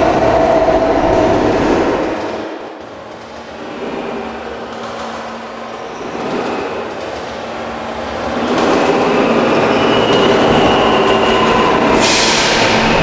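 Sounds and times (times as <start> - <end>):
subway train rumbling: 0.0 - 13.0
high wheel squeal: 8.6 - 13.0.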